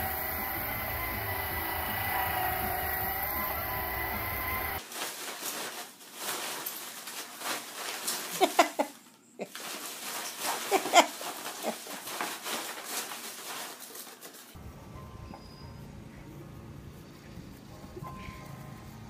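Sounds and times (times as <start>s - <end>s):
foam packing peanuts rustling: 0.0s - 14.6s.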